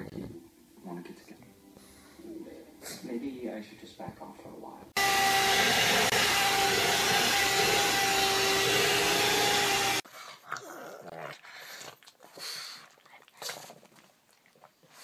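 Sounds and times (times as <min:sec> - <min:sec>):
hair dryer blowing: 0:05.0 - 0:10.0.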